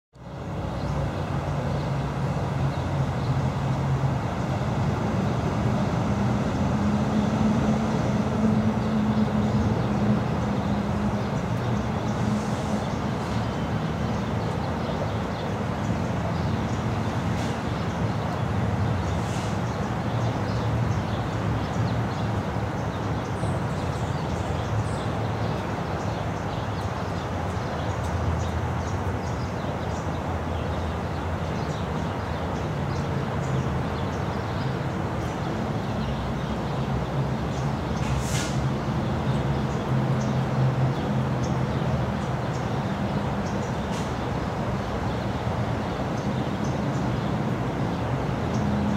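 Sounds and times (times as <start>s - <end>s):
low engine hum: 0.2s - 48.9s
low rumble of vehicles: 0.2s - 48.9s.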